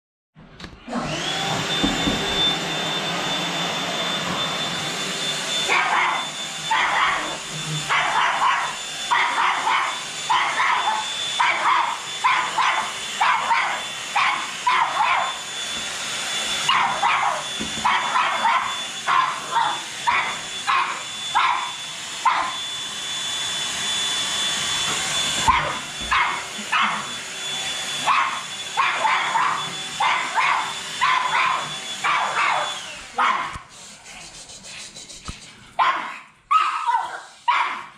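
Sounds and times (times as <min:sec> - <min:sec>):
vacuum cleaner running: 0:00.6 - 0:37.9
dog barking: 0:05.6 - 0:15.4, 0:16.6 - 0:22.6, 0:25.4 - 0:27.1, 0:27.9 - 0:33.6, 0:35.8 - 0:37.9.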